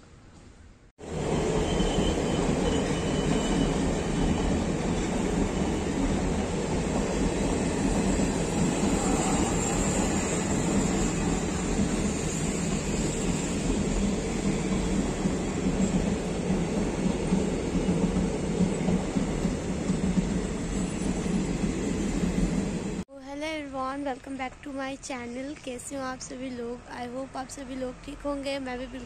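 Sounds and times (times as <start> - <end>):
passenger train passing: 0.5 - 23.0
wheels on rails: 1.1 - 23.0.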